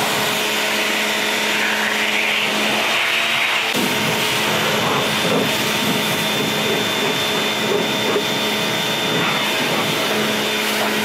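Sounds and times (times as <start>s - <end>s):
pressure washer motor hum: 0.0s - 11.0s.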